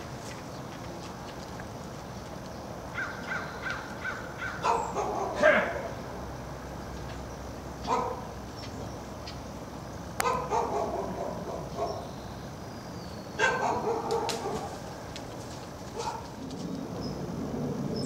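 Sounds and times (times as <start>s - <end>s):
dogs barking: 3.0s - 6.0s, 7.8s - 8.3s, 10.2s - 12.1s, 13.4s - 15.0s, 15.9s - 16.4s.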